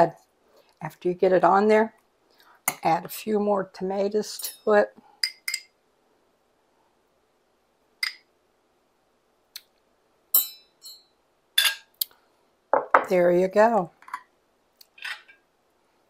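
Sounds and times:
metal spoon clinking on ceramic: 5.2 - 5.7, 10.4 - 11.9.

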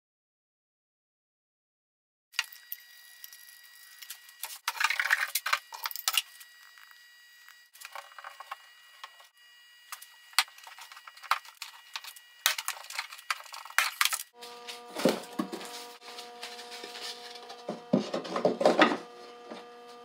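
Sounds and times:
rustling and scraping: 10.4 - 20.0.

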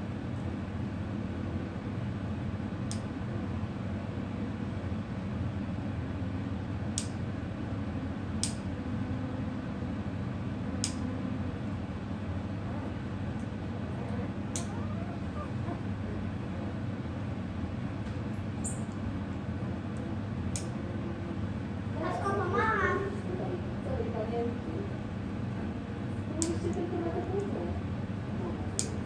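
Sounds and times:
low background hum: 0.0 - 29.0
nail clipper clicks: 8.4 - 8.6, 14.5 - 14.7, 20.5 - 20.7, 28.8 - 29.0.

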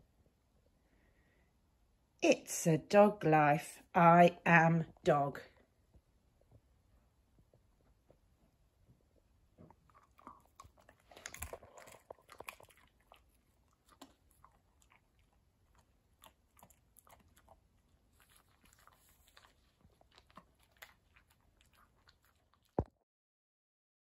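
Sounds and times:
dog crunching a treat: 9.6 - 23.0.

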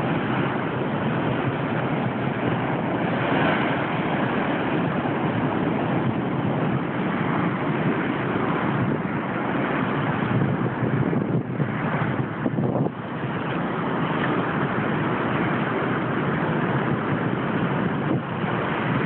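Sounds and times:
ocean surf against seawall: 0.0 - 19.0.

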